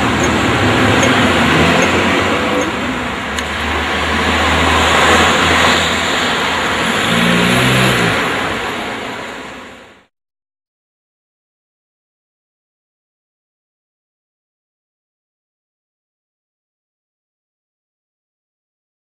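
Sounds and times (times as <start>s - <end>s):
low engine hum: 0.0s - 10.1s
road traffic rush: 0.0s - 10.1s.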